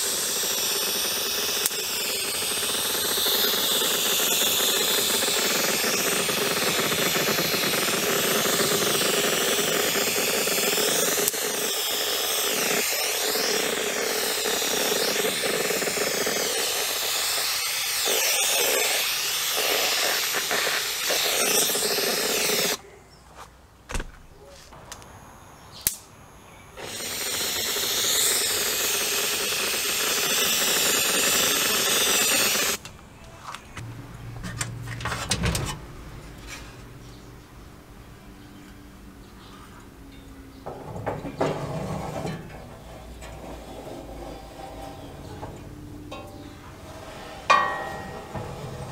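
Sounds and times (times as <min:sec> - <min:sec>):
spray paint hissing: 0:00.0 - 0:22.8, 0:26.7 - 0:32.8.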